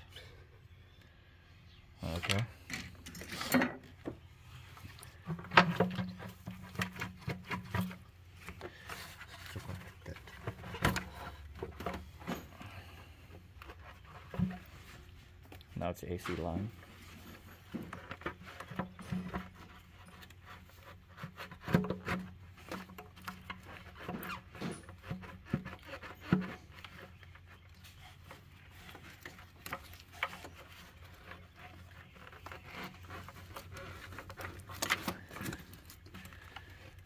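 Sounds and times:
clicks and rattles of parts: 0:28.2 - 0:37.0.

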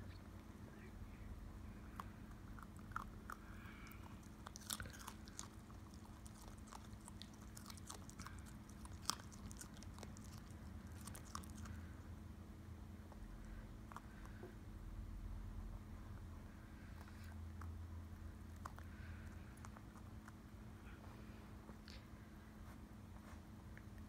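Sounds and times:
low steady hum: 0:00.0 - 0:24.0
puppy crunching on carrot: 0:01.8 - 0:12.0, 0:18.4 - 0:20.7.

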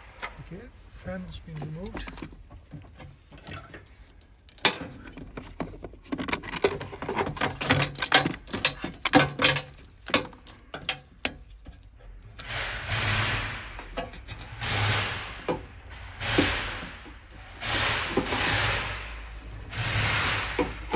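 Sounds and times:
tools clinking on metal casing: 0:03.3 - 0:12.0.

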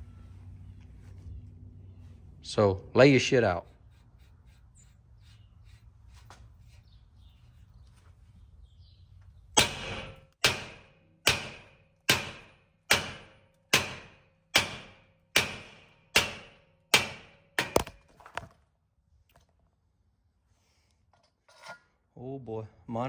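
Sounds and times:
hammer striking metal shaft: 0:09.6 - 0:17.9.

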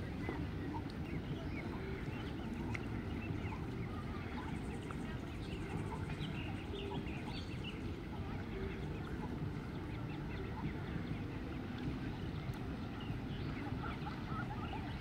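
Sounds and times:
ducklings peeping: 0:00.2 - 0:15.0.

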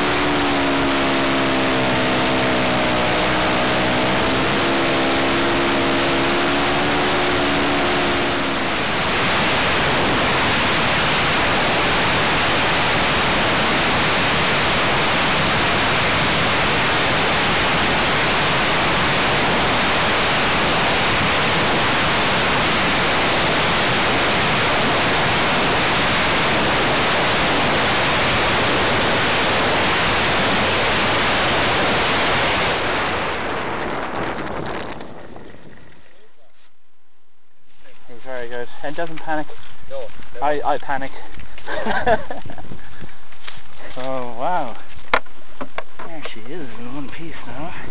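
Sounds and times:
model plane engine: 0:00.0 - 0:36.3
wind rush over microphone: 0:00.9 - 0:36.2.

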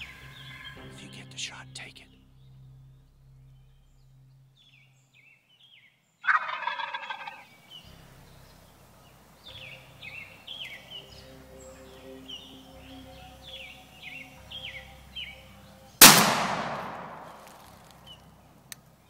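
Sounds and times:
songbirds chirping: 0:00.0 - 0:19.0
turkey gobbling: 0:06.2 - 0:07.6.

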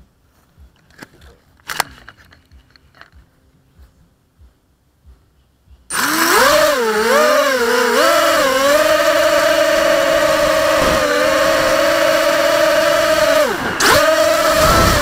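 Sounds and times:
drone propellers buzzing whine: 0:05.9 - 0:15.0.

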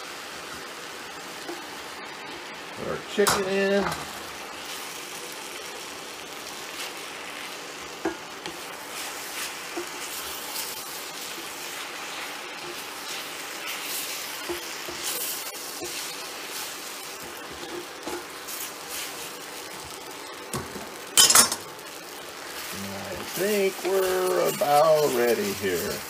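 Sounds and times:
food sizzling in a wok: 0:00.0 - 0:26.0
wooden spatula scraping iron: 0:22.6 - 0:26.0.

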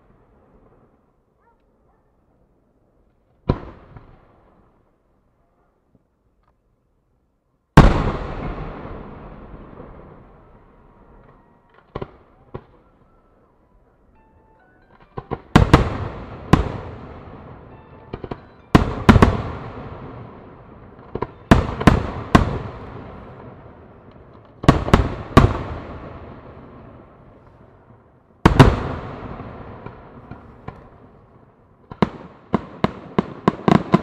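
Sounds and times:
firework booms with echoing rumble: 0:03.4 - 0:04.7, 0:07.8 - 0:13.0, 0:15.2 - 0:34.0.

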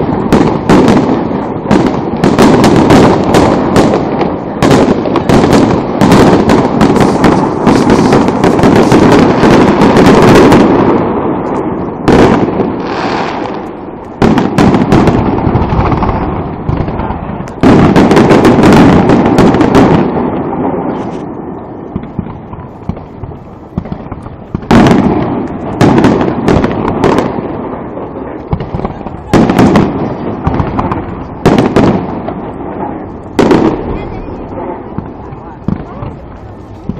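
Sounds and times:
firework shells bursting: 0:00.0 - 0:36.9
deep continuous rumble: 0:32.4 - 0:36.9.

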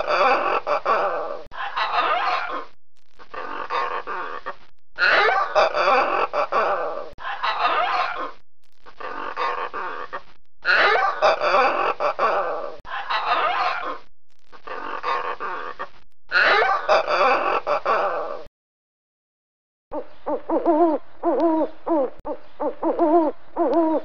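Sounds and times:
macaws squawking: 0:00.0 - 0:02.7, 0:03.3 - 0:08.4, 0:09.0 - 0:14.0, 0:14.6 - 0:18.4, 0:19.9 - 0:24.0.

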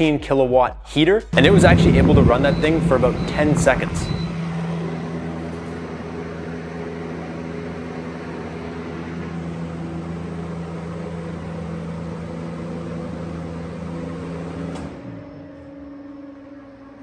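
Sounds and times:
fan noise: 0:01.3 - 0:14.9
electric heater hum: 0:01.3 - 0:17.0.

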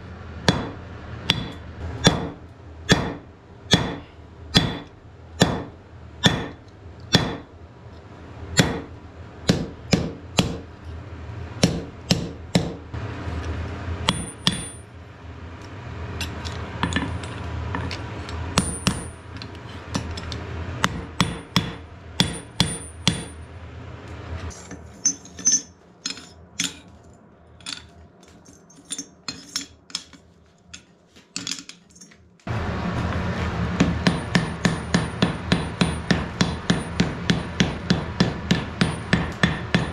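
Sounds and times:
hammer striking iron on anvil: 0:00.4 - 0:07.5, 0:08.6 - 0:10.7, 0:11.6 - 0:12.9, 0:14.1 - 0:14.9, 0:18.6 - 0:19.4, 0:20.8 - 0:23.4, 0:33.8 - 0:39.9.

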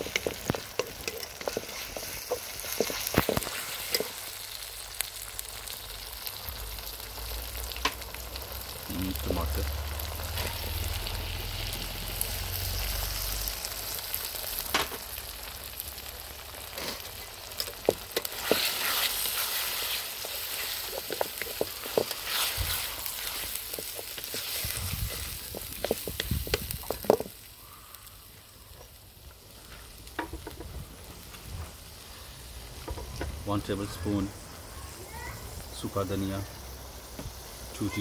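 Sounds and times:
wooden spatula scraping a pan: 0:00.0 - 0:04.2, 0:16.7 - 0:27.3
vegetables sizzling in oil: 0:00.0 - 0:38.0.

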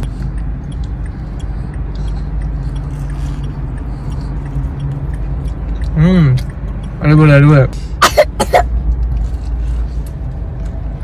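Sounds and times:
chewing crunches: 0:00.0 - 0:06.6
car engine idling: 0:00.0 - 0:11.0.

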